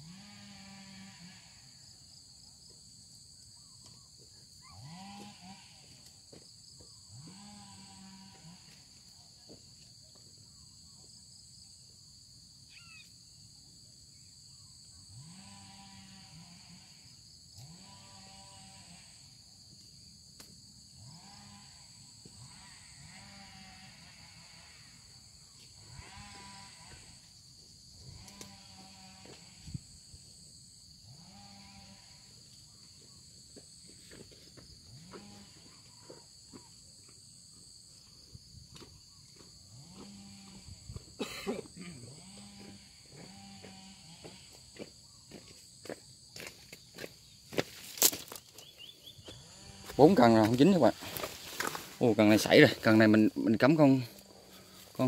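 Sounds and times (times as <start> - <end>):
insects trilling: 0.0 - 55.0
frogs calling: 12.7 - 13.1, 38.7 - 55.0.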